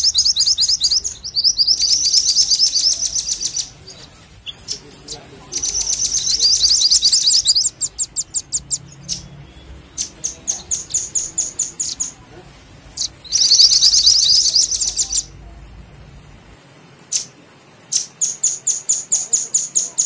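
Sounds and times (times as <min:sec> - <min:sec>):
sharp bird chips: 0:00.0 - 0:12.2, 0:12.9 - 0:15.3
songbird trill: 0:00.0 - 0:15.4, 0:17.0 - 0:20.0.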